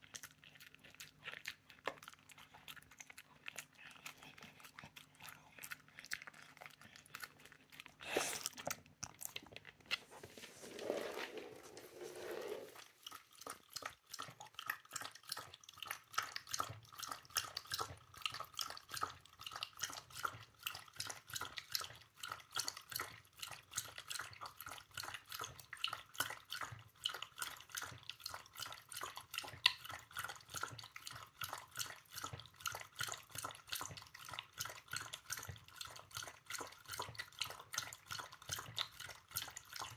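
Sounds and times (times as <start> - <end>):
rustling: 9.8 - 13.0
dog lapping water from metal bowl: 11.9 - 39.9.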